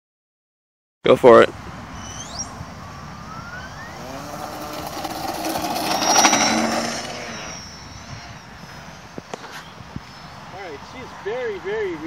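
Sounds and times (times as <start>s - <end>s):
model plane motor whining: 3.5s - 9.4s.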